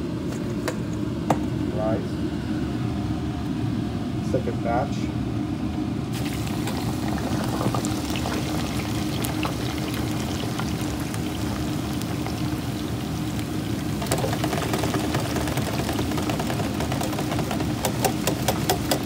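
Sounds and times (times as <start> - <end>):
fries sizzling in deep fryer oil: 6.1 - 19.0.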